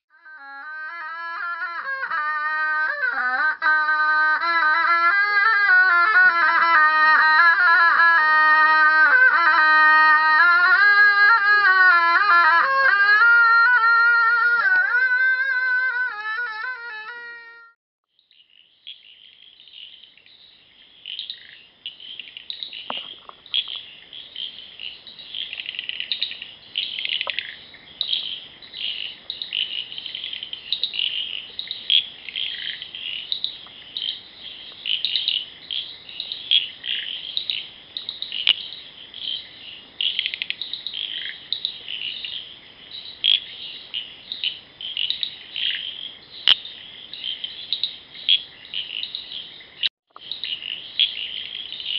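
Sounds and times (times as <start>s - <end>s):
frogs and cicadas chirping: 0.2s - 16.9s, 18.1s - 51.9s.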